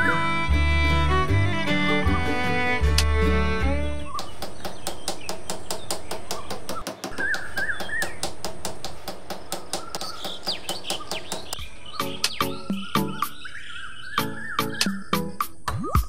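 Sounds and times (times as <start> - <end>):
birds chirping: 0.0 - 1.2, 2.3 - 16.0
hammer tapping posts into sand: 4.0 - 13.2.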